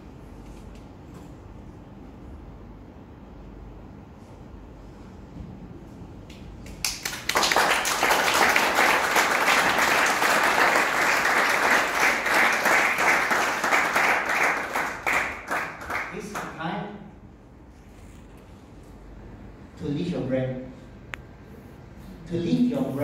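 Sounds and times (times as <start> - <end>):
audience applauding: 6.7 - 16.5.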